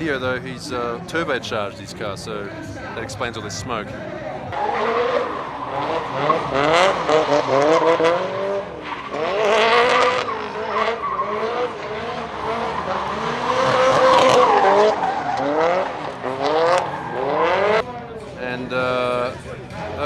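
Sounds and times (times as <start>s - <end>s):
tyres spinning and screeching: 4.4s - 17.8s
car engine revving hard: 4.5s - 17.8s.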